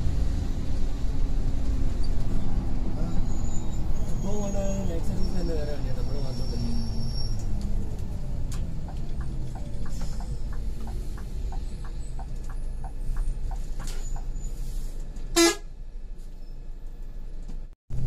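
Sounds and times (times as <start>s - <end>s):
bus engine rumble: 0.0s - 18.0s
short horn toot: 15.4s - 15.7s.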